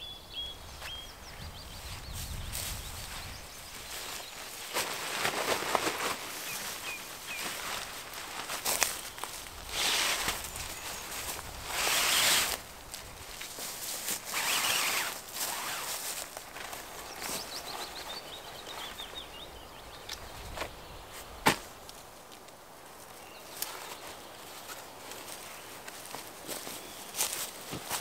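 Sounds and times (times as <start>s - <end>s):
nylon fabric rustling: 3.0s - 12.6s, 13.6s - 17.4s.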